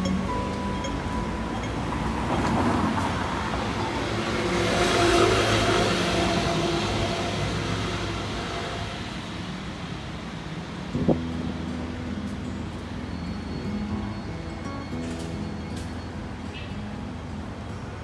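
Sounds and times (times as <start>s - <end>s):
city traffic noise: 0.0s - 18.0s
vehicle passing: 0.4s - 10.0s.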